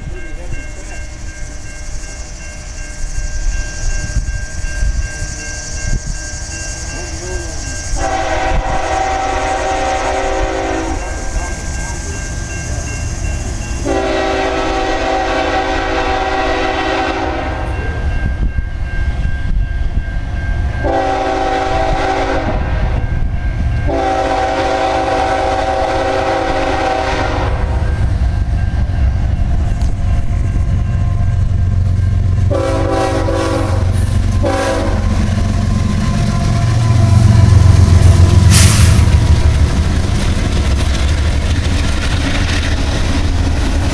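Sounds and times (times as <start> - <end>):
locomotive rumble: 0.0 - 43.9
train air horn blasts: 8.0 - 11.5, 13.8 - 17.8, 20.8 - 23.1, 23.8 - 28.1, 32.4 - 39.6.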